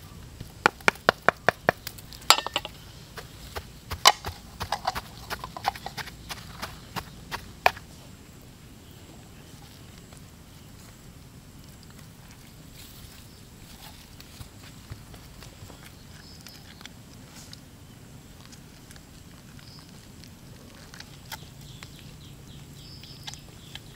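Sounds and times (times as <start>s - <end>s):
faint background noise: 0.0s - 23.9s
sharp knocks and clacks: 0.6s - 7.8s.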